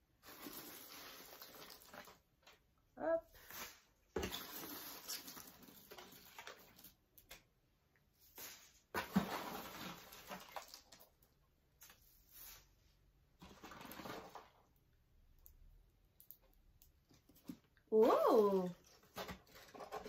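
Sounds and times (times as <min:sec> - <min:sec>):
paper packaging rustling: 0:00.2 - 0:02.6, 0:18.8 - 0:20.0.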